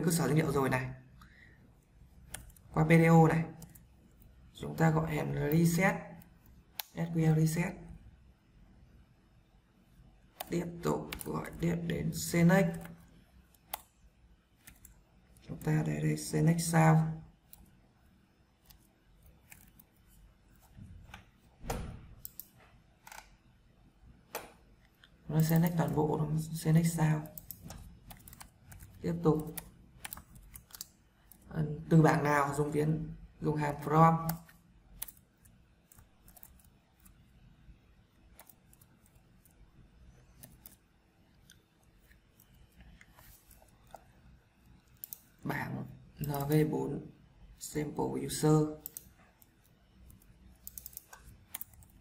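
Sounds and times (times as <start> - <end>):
keyboard keys clicking: 10.4 - 11.7, 21.1 - 23.3, 27.2 - 31.4, 48.8 - 52.0.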